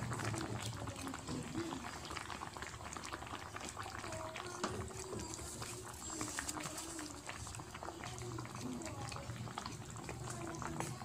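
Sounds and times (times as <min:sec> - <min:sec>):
stew bubbling and popping: 0:00.0 - 0:11.0
wooden spatula stirring: 0:03.1 - 0:11.0.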